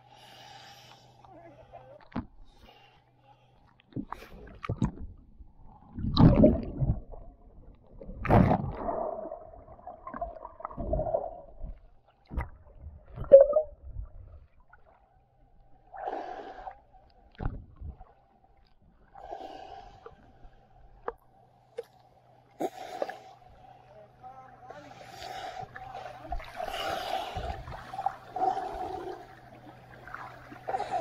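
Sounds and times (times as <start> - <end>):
underwater thumps and sloshing: 3.9 - 15.0, 17.2 - 18.8, 25.6 - 28.4.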